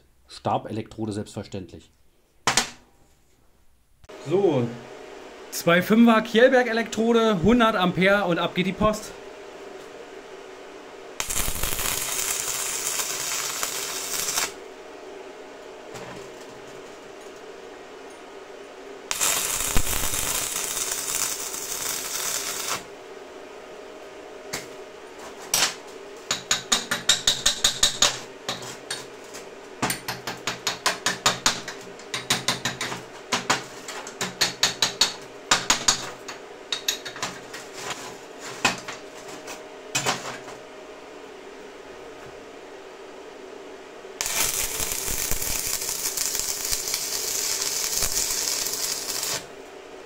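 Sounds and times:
welding arc crackling hiss: 0:11.2 - 0:14.6, 0:19.1 - 0:22.9, 0:44.2 - 0:49.6.

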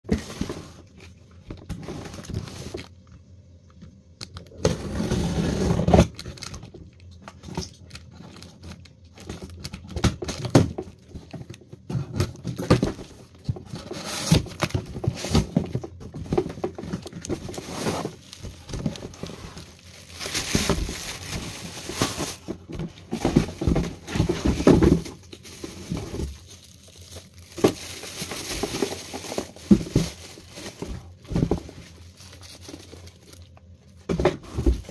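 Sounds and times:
cardboard flaps scraping and bumping: 0:00.1 - 0:00.9, 0:09.3 - 0:26.6, 0:27.4 - 0:32.0, 0:34.0 - 0:34.9
plastic bag crinkling: 0:00.2 - 0:03.1, 0:06.0 - 0:34.9.

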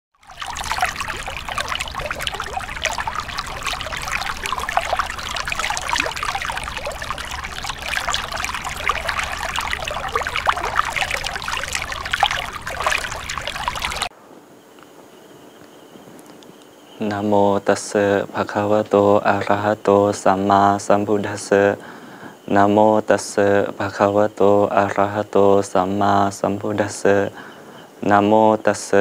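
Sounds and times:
running water trickling: 0:00.2 - 0:14.1.

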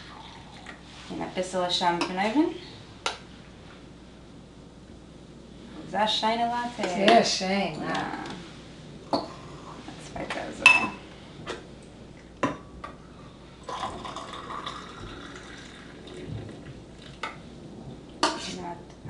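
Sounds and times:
milk pouring into a mug: 0:13.6 - 0:17.2.

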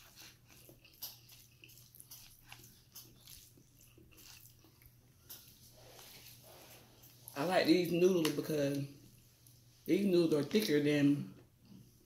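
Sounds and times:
person chewing noodles: 0:00.0 - 0:07.4.

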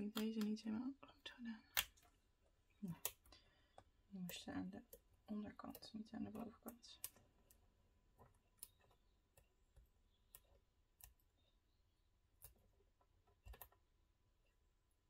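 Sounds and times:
tweezers clicking on tabletop: 0:02.9 - 0:07.6, 0:08.5 - 0:09.5.

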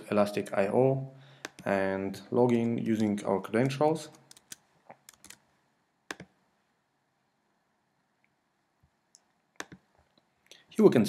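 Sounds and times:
keyboard keystroke clicks: 0:06.1 - 0:06.4, 0:09.2 - 0:09.8.

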